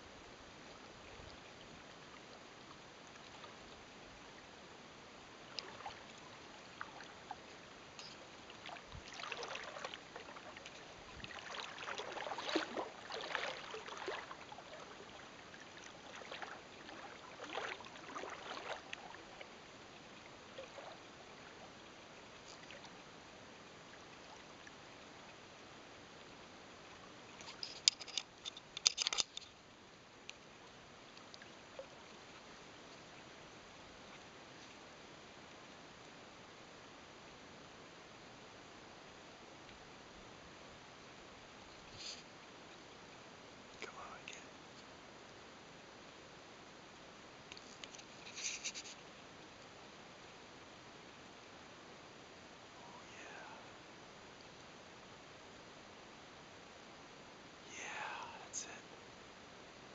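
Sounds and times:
quiet hiss: 0:00.0 - 0:59.9
shallow water sloshing: 0:05.4 - 0:19.6.

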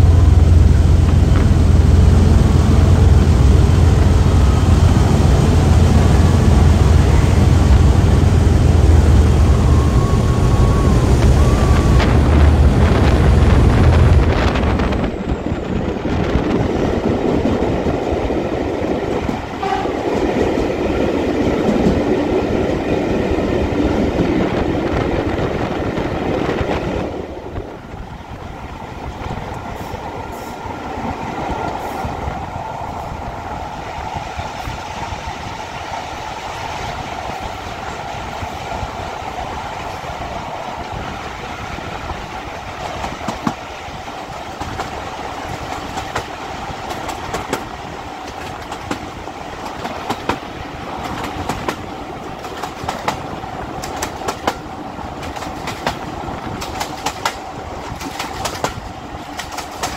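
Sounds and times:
held whine: 0:00.0 - 0:16.5
diesel train running: 0:00.0 - 0:59.9
wheels clicking over rail joints: 0:44.6 - 0:59.9.

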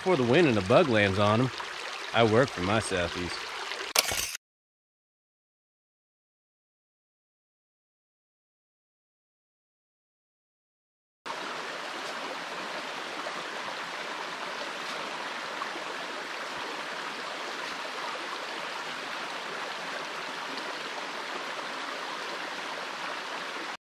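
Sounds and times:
water rushing over stones: 0:00.0 - 0:04.2, 0:11.3 - 0:23.8.

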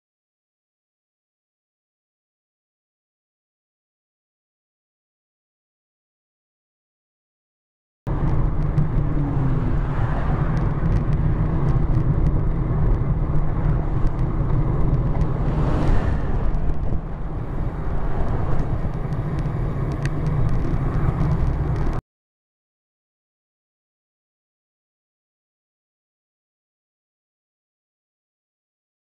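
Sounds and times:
vehicle passing: 0:08.1 - 0:22.0
wind rumbling on microphone: 0:08.1 - 0:22.0.

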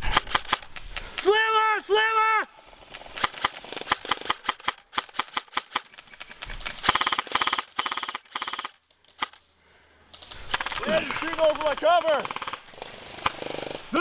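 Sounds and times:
airsoft guns firing: 0:02.8 - 0:09.4, 0:10.2 - 0:14.0.

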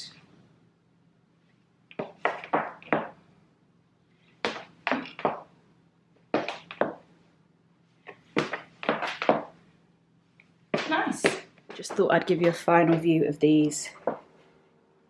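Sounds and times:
heel footsteps on wooden floor: 0:01.9 - 0:03.2, 0:04.4 - 0:05.5, 0:06.3 - 0:07.1, 0:08.0 - 0:09.6, 0:10.7 - 0:13.2, 0:14.0 - 0:14.3.

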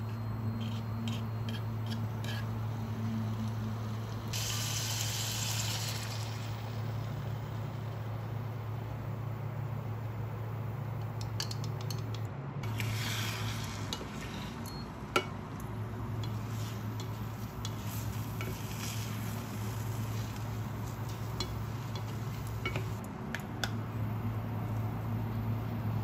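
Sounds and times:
steady low hum: 0:00.0 - 0:26.0
light sizzling: 0:00.6 - 0:10.1, 0:12.6 - 0:23.0.

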